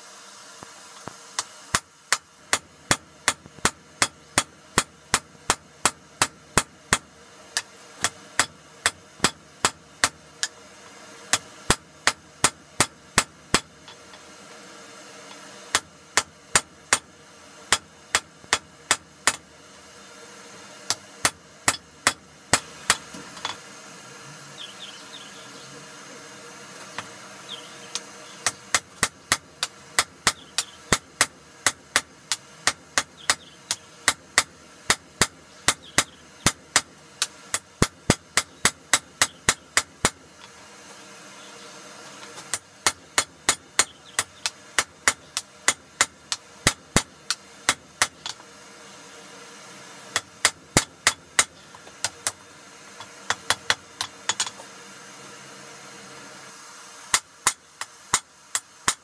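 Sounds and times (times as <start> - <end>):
hammer striking hot steel on anvil: 1.4 - 10.6, 11.3 - 14.3, 15.3 - 17.1, 17.7 - 19.5, 20.9 - 23.7, 27.9 - 40.5, 42.3 - 48.4, 50.1 - 52.4, 53.0 - 54.6, 57.1 - 59.0.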